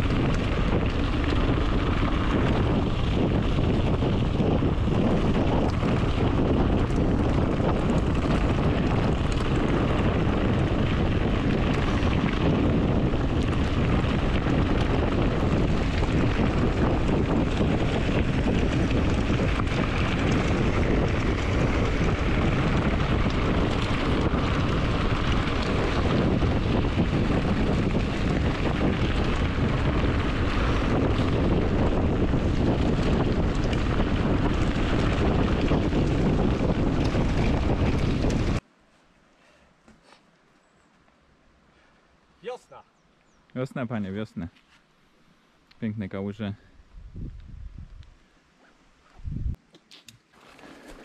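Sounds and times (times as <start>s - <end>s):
bike tyres rolling on gravel: 0.0s - 38.6s, 50.2s - 51.0s
wind buffeting microphone: 0.0s - 38.6s, 45.8s - 48.2s, 49.0s - 49.6s.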